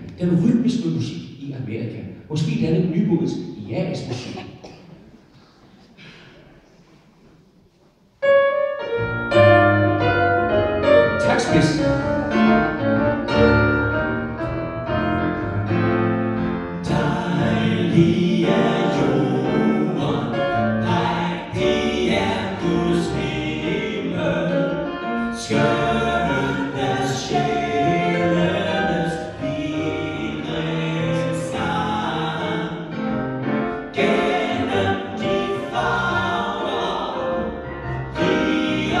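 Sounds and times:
men singing into microphones: 16.8s - 24.8s, 25.4s - 33.0s, 33.9s - 37.4s, 38.2s - 39.0s.

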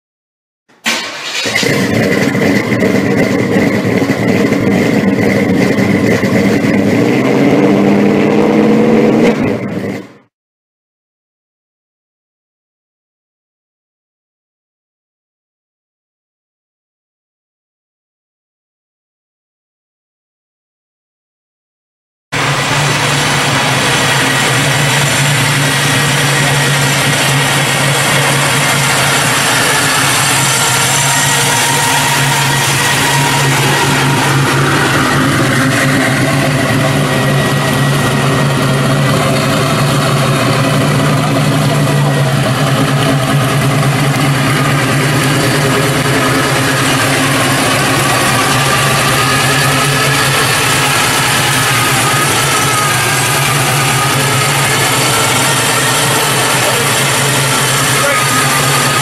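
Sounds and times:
truck engine running: 0.8s - 10.3s, 22.3s - 59.0s.

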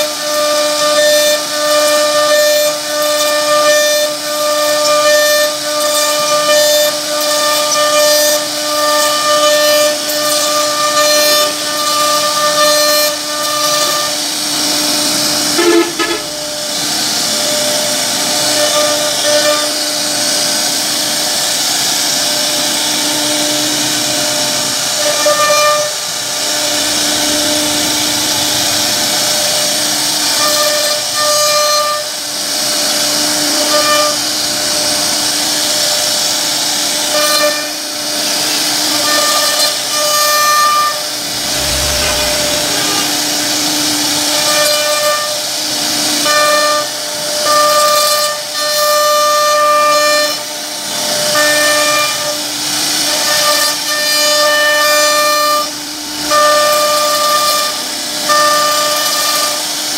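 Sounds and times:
router spindle whine: 37.7s - 46.2s
hiss of wood cutting: 38.2s - 46.8s.

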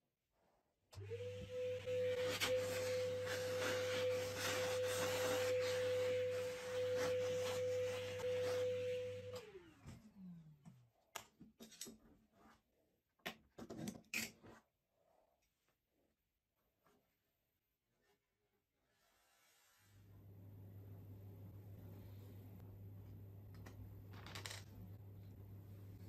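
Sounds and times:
shop vacuum whining: 1.0s - 10.8s.

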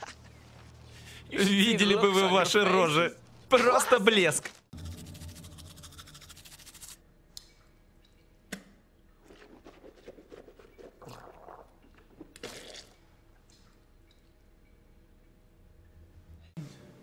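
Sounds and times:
toothbrush scrubbing teeth: 4.8s - 7.0s, 9.2s - 11.6s
wet squishy mouth sounds: 9.2s - 13.0s.

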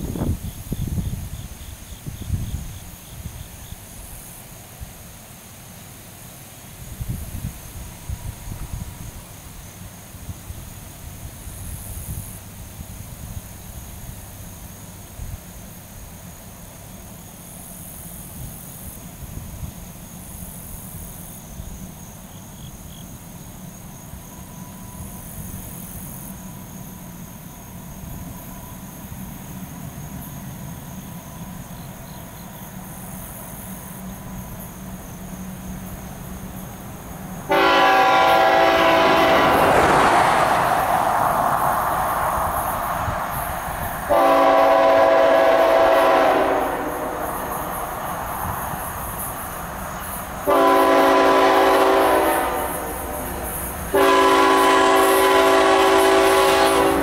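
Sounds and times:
train rumbling: 0.0s - 57.0s
locomotive air horn blasts: 37.5s - 39.9s, 44.1s - 47.7s, 50.4s - 57.0s.

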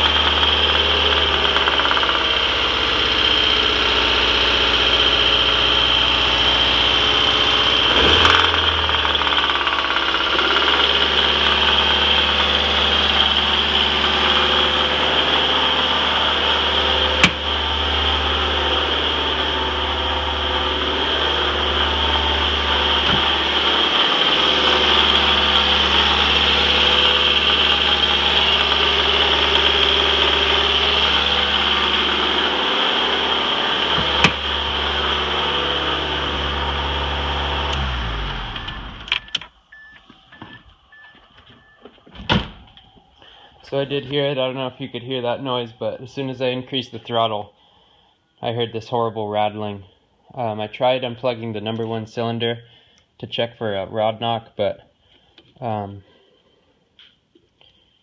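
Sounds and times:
car engine idling: 0.0s - 48.0s.

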